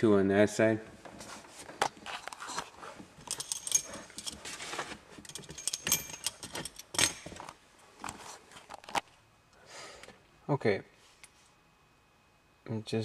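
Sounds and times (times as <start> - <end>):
light metallic jingling: 3.3 - 4.4, 5.3 - 7.2.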